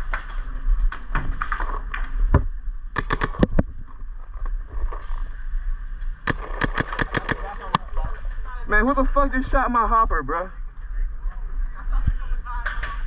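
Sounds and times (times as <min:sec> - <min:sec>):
paintball marker shots: 0:03.0 - 0:03.6, 0:06.3 - 0:07.8.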